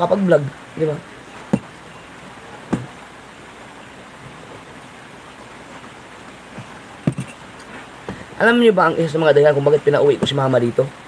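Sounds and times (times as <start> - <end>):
rushing background hiss: 0.0 - 11.0.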